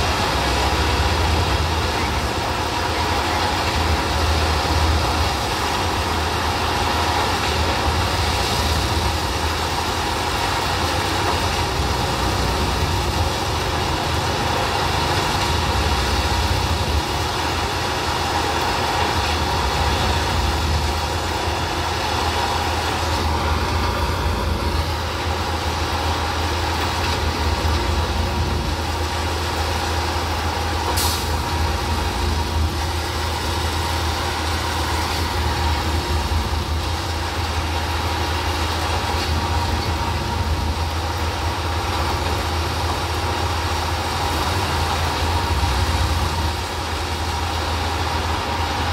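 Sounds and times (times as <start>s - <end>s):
diesel engine running: 0.0s - 48.9s.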